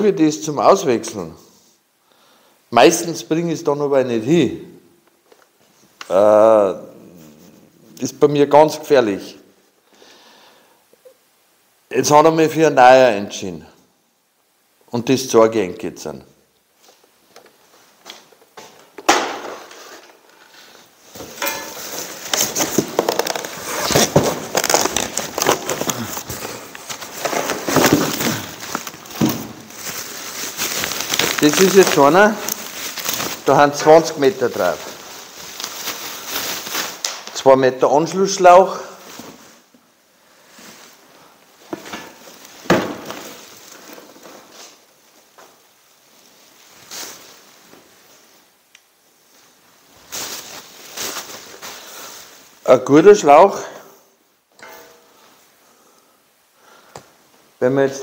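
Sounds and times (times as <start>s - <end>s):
plastic bag rustling: 16.8s - 37.4s, 38.0s - 48.5s, 49.2s - 52.6s
cardboard box rustling and crackling: 21.8s - 33.5s.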